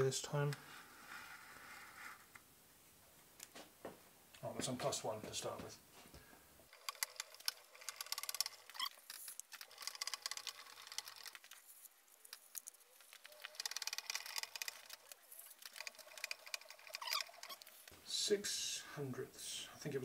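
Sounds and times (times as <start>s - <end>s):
machine clicking and rattling: 6.7s - 11.6s, 12.6s - 17.7s.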